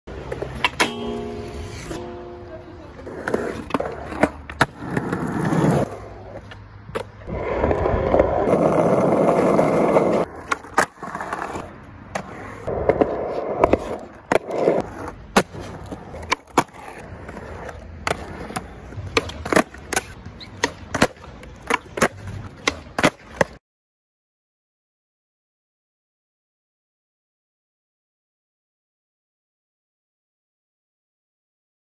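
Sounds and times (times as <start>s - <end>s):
skateboard clacking on ground: 0.1s - 23.6s
skateboard wheels rolling on concrete: 0.1s - 23.6s.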